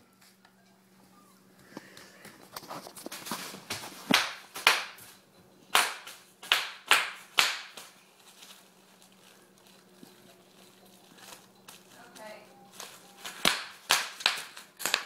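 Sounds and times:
bubble wrap popping: 5.8s - 15.0s.

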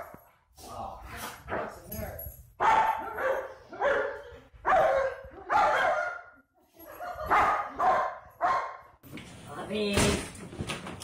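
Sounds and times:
dogs barking and yelping: 2.6s - 6.3s, 7.0s - 8.8s.

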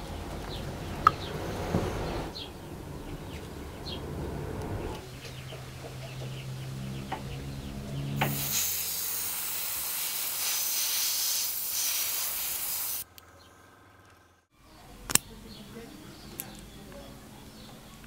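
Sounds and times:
airbrush spraying hiss: 8.2s - 13.1s.

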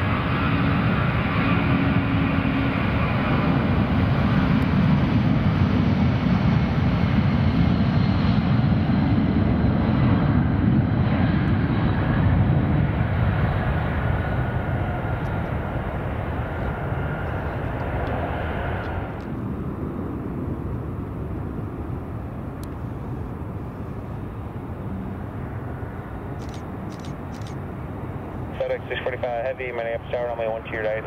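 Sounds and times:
jet engines rumbling: 0.0s - 31.0s.

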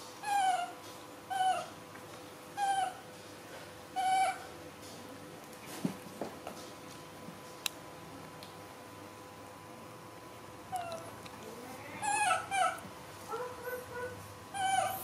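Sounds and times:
baby macaque crying: 0.2s - 1.7s, 2.6s - 3.0s, 4.0s - 4.5s, 12.0s - 15.0s.

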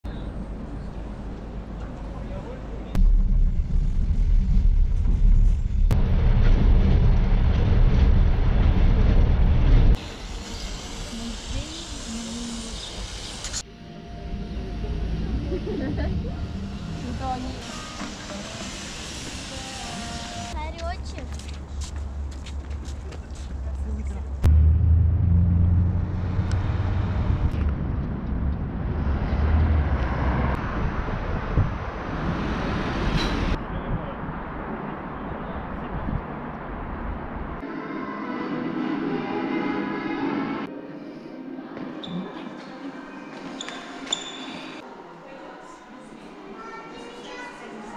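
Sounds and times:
passenger train rumbling: 0.1s - 21.3s.

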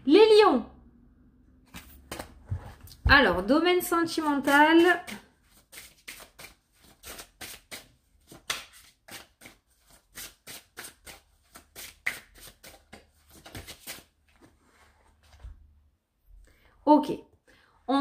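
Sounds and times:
cards being shuffled: 1.7s - 2.9s, 4.2s - 14.6s.

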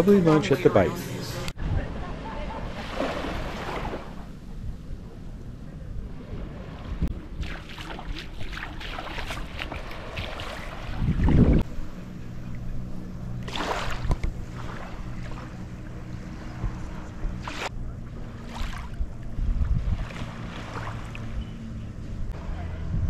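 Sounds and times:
small waves lapping on shore: 1.9s - 4.6s, 6.2s - 21.7s
wind buffeting microphone: 3.2s - 23.0s.

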